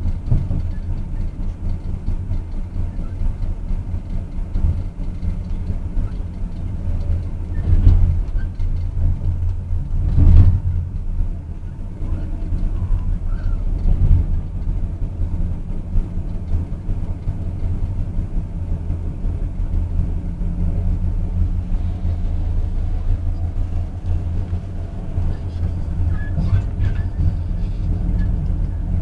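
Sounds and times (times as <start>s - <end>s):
train running rumble: 0.0s - 29.0s.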